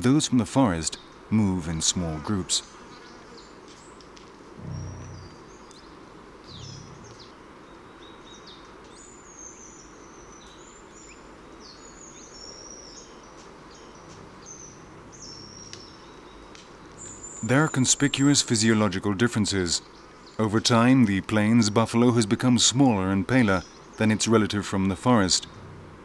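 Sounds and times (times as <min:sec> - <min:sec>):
small birds chirping: 0:00.0 - 0:26.0
steady hiss: 0:00.0 - 0:26.0
short low rumbles: 0:04.6 - 0:05.6, 0:06.5 - 0:07.3.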